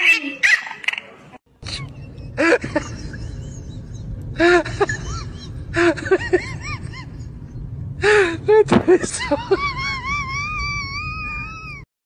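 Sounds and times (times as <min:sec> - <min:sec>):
small dog yelping: 0:00.0 - 0:01.0.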